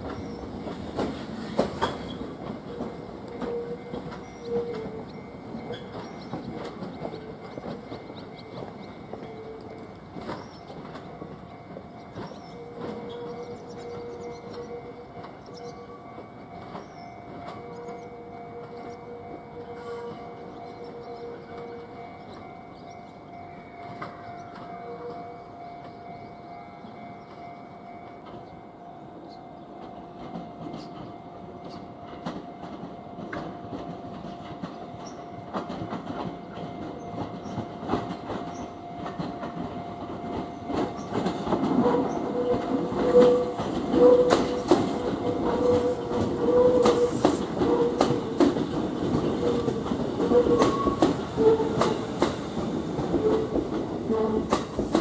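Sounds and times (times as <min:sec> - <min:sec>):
wheels clicking over rail joints: 0:00.0 - 0:26.2, 0:29.8 - 0:55.0
train passing: 0:00.0 - 0:55.0.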